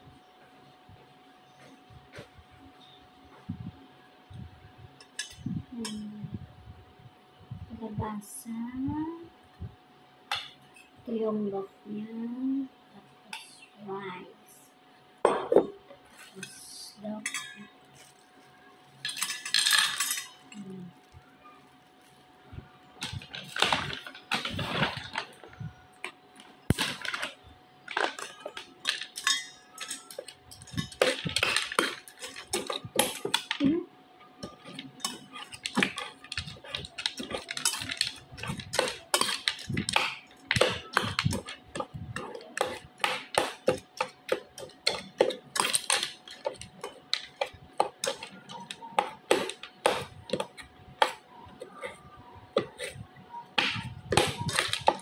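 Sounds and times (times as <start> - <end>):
plastic bag crinkling: 34.4 - 41.5
spoon scraping metal bowl: 34.4 - 53.0, 53.6 - 55.0.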